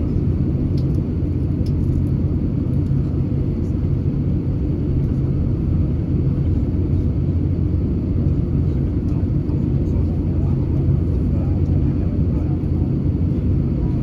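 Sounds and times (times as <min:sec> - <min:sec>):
airplane engines rumbling: 0:00.0 - 0:14.0.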